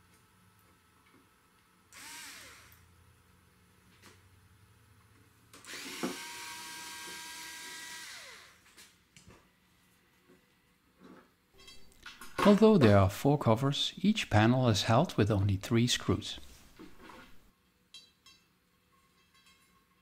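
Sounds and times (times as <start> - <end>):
electric screwdriver whining: 1.9 - 2.9, 5.6 - 8.6.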